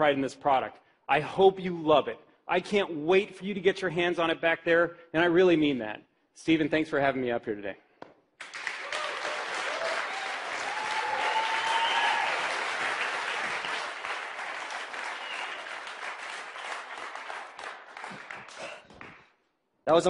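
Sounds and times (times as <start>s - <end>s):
audience applauding: 8.4s - 19.3s.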